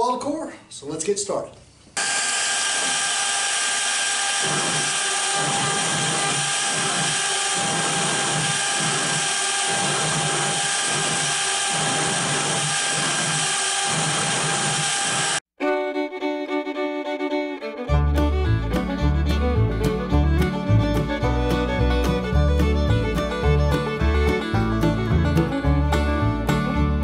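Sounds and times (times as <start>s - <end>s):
cnc router spindle whine: 2.0s - 15.4s
v-bit carving wood: 2.0s - 15.4s.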